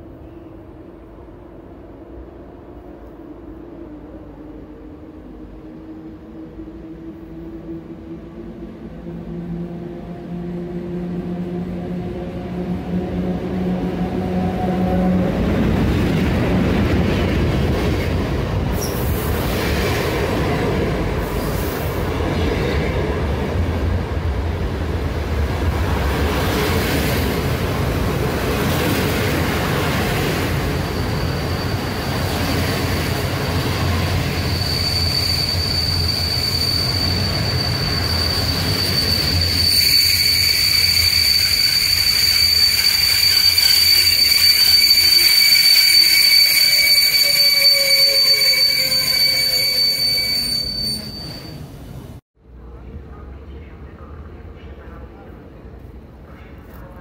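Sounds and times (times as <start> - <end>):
train wheels rumbling: 3.9 - 52.2
high wheel squeal: 30.6 - 32.6, 33.3 - 51.8.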